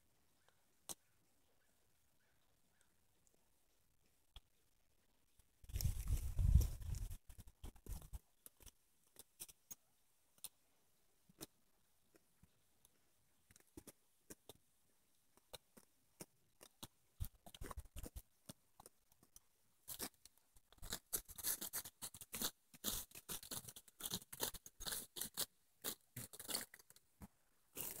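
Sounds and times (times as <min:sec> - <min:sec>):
goats chewing: 0:05.6 - 0:08.6.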